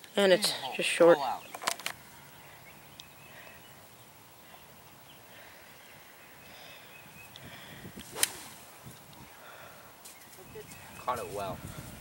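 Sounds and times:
golf club striking ball: 8.0 - 8.5.

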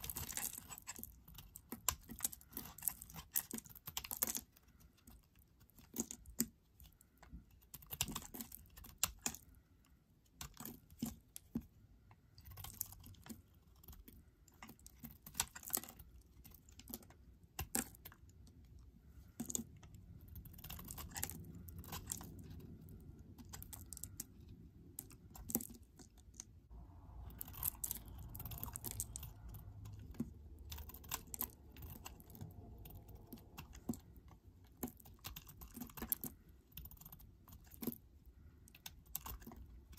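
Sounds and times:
knife cutting soap: 0.0 - 9.6
faint low rumble: 16.4 - 39.9.

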